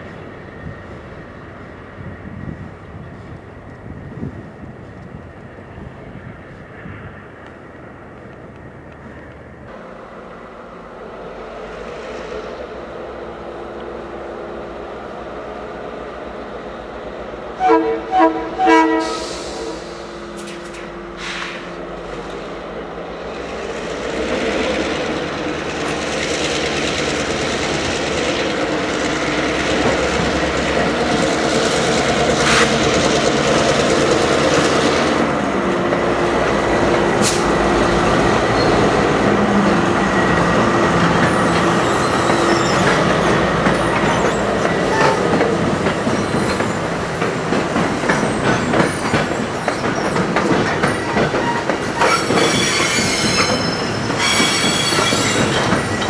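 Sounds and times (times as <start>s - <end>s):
diesel train drone: 0.0s - 56.0s
wheels rumbling on rail: 0.0s - 56.0s
wheels clicking over rail joints: 39.6s - 56.0s.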